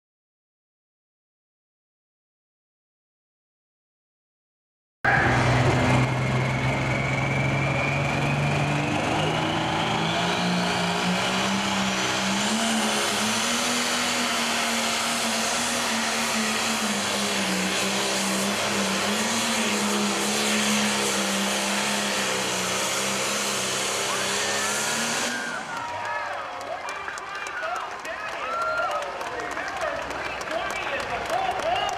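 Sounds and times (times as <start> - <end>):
turbocharger whine: 5.1 - 26.4
diesel engine at full power: 5.1 - 31.9.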